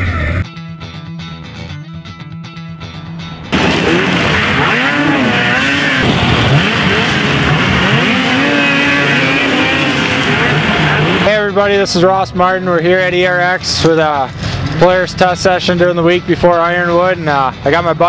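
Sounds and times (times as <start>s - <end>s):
background music: 0.0s - 18.0s
snowmobile engines revving: 3.5s - 11.9s
snowmobile track noise: 3.5s - 16.0s.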